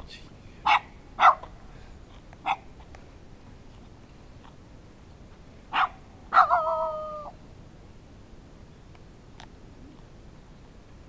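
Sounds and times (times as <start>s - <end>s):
dog barking: 0.6s - 1.5s, 2.4s - 2.7s, 5.7s - 6.9s
dog howling bark: 5.7s - 7.4s.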